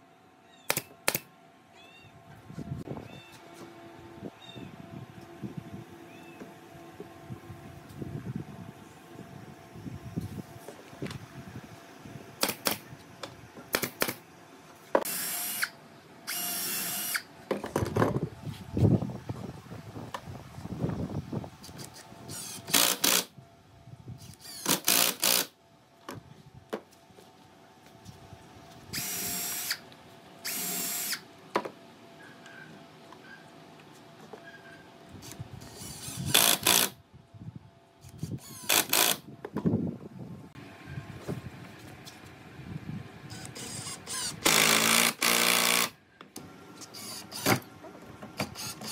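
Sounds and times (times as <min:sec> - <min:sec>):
cordless drill drilling into wood: 0:15.0 - 0:17.2, 0:22.3 - 0:23.3, 0:24.2 - 0:25.5, 0:29.0 - 0:29.8, 0:30.4 - 0:31.2, 0:35.6 - 0:37.0, 0:38.2 - 0:39.2, 0:43.3 - 0:45.9, 0:48.5 - 0:48.9
impact driver driving screws: 0:21.7 - 0:23.3, 0:24.3 - 0:25.5, 0:35.6 - 0:37.0, 0:38.1 - 0:39.2, 0:43.3 - 0:45.9.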